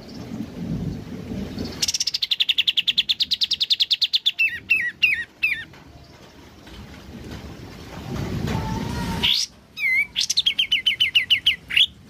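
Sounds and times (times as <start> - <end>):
bird singing rattling trill: 1.5 - 6.7, 9.2 - 12.0.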